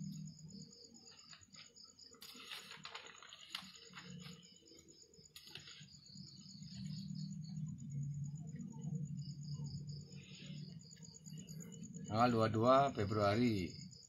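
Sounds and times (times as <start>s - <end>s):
paper rustling and crackling: 1.1s - 4.6s, 5.3s - 6.9s.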